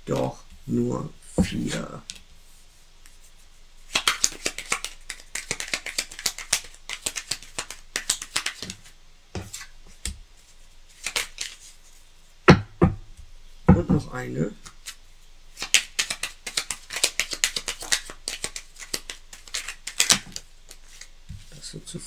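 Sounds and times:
cards being shuffled: 3.9 - 11.8, 14.6 - 15.0, 15.6 - 21.5.

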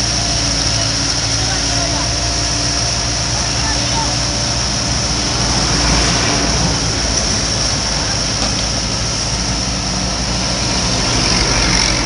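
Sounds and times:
excavator diesel engine drone: 0.0 - 12.0
steady high hiss: 0.0 - 12.0.

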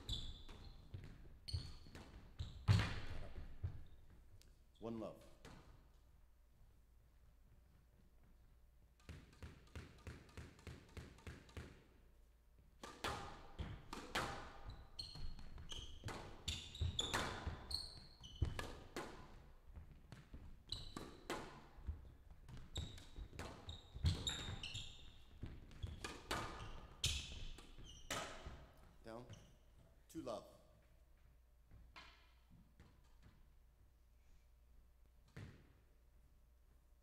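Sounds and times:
shoes squeaking on court floor: 0.0 - 4.2, 13.6 - 30.0
squash ball cracking off rackets: 12.8 - 17.7, 18.3 - 24.6, 25.4 - 28.6.

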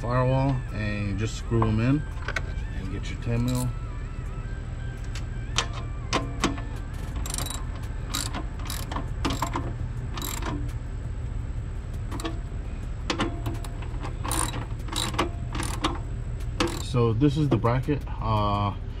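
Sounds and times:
low hum: 0.0 - 17.5
hand ratchet clicking: 3.4 - 3.7, 7.2 - 10.7, 13.1 - 16.0, 16.6 - 17.0.

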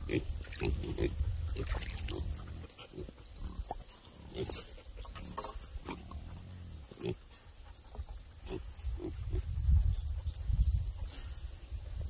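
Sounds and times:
pigs grunting: 0.0 - 7.4, 8.4 - 9.4.

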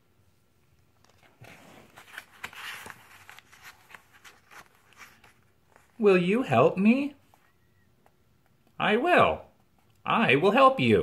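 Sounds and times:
paper page turning: 1.0 - 6.0.

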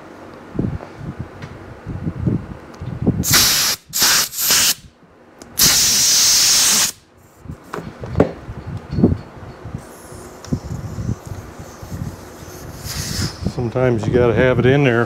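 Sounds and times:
compressed air hissing: 3.2 - 4.9, 5.6 - 7.0, 9.8 - 13.6.

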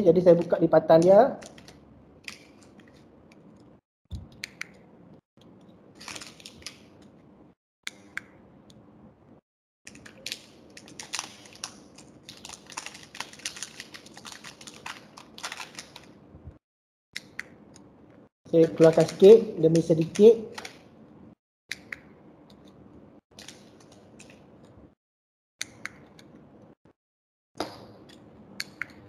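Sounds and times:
plastic bag crinkling: 6.0 - 6.9, 9.9 - 16.2.

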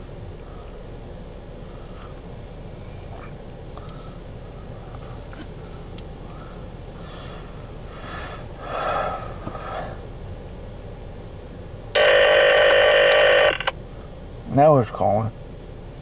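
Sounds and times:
low background hum: 0.0 - 16.0
electronic calling tone: 12.0 - 13.7.

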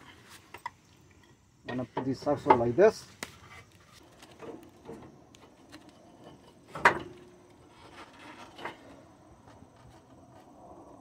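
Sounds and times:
metal parts clunking and rubbing: 3.4 - 10.2.

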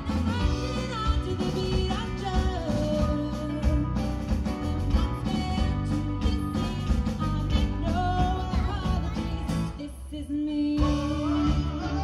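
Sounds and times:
live pop-rock band: 0.0 - 12.0
woman singing: 0.1 - 12.0.

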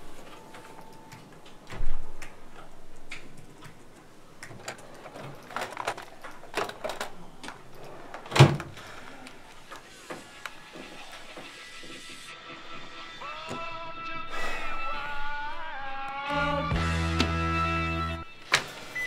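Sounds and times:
door shutting with thud: 8.3 - 8.8.

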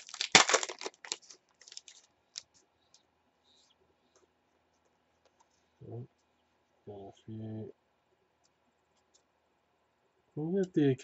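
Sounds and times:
cards clicking and rustling: 0.0 - 2.6
foil wrapper tearing and crinkling: 0.0 - 2.6.

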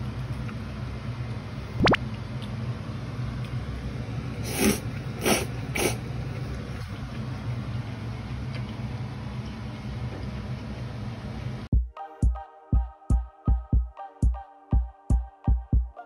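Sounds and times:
low mechanical hum: 0.0 - 11.7.

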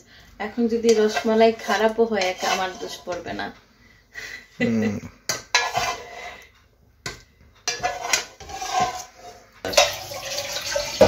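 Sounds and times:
spatula scraping a frying pan: 0.7 - 3.4, 5.3 - 11.0.

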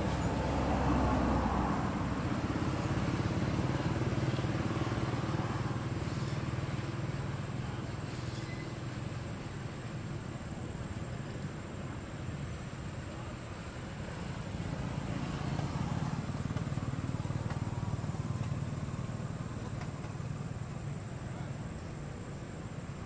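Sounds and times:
motor vehicle rumble: 0.0 - 23.0.

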